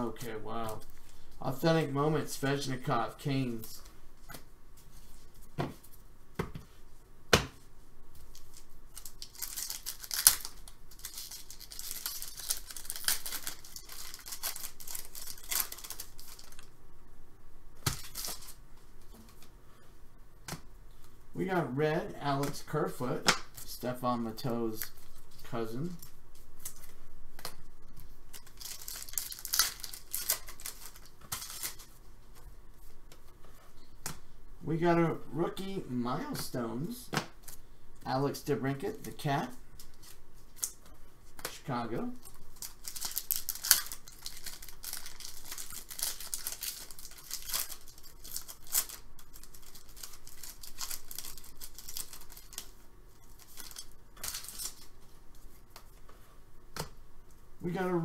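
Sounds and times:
foil wrapper crinkling and tearing: 8.3 - 16.7, 17.9 - 18.6, 24.8 - 32.0, 42.2 - 55.0.

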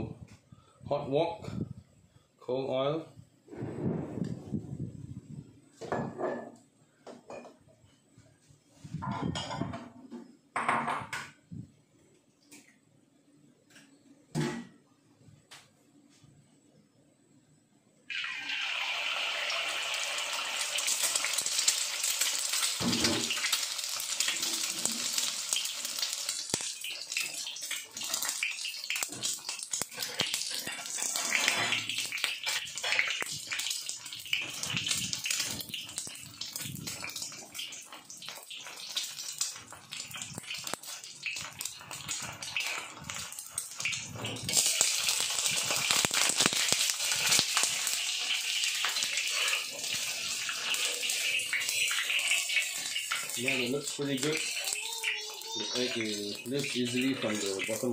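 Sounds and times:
egg sizzling and popping in oil: 18.1 - 57.9
spatula scraping wok: 29.2 - 36.0, 41.9 - 53.4.

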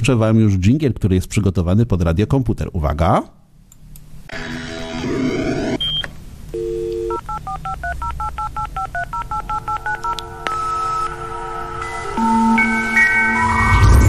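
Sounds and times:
phone line tones: 5.7 - 13.4
touch-tone dialing beeps: 5.8 - 11.1
dial tone: 6.6 - 11.2.

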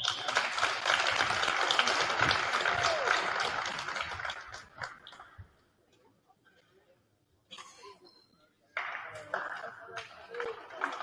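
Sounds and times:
crowd cheering and applauding: 0.0 - 5.2, 8.8 - 11.0.

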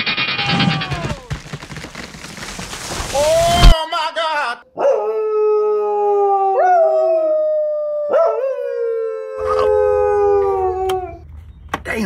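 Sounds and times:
long howling wail: 4.9 - 11.3.

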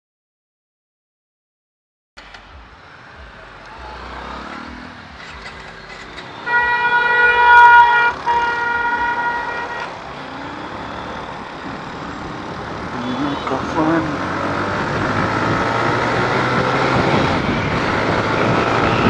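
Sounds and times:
road traffic noise: 2.2 - 19.0
vehicle horn honking: 3.8 - 10.1, 12.8 - 14.1.

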